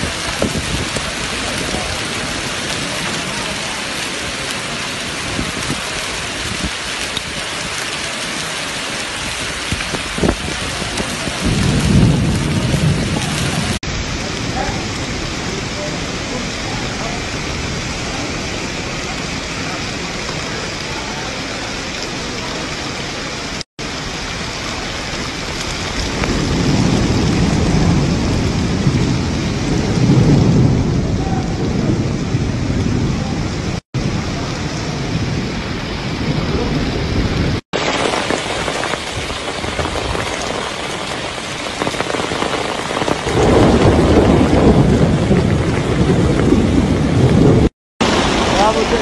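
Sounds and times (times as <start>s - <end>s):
heavy rain on stone paving: 0.0s - 49.0s
deep rumbling: 38.3s - 49.0s.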